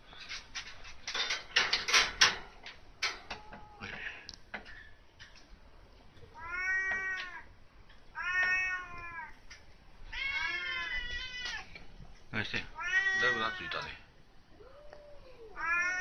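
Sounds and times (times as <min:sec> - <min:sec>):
cat meowing: 0:03.3 - 0:04.3, 0:06.2 - 0:07.5, 0:08.1 - 0:09.4, 0:10.1 - 0:11.8, 0:12.7 - 0:16.0.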